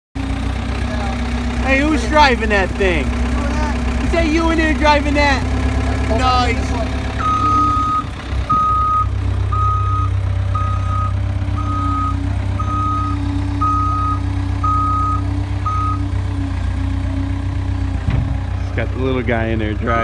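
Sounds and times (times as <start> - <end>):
diesel engine running: 0.2 - 20.0
backup alarm beeping: 7.2 - 16.1.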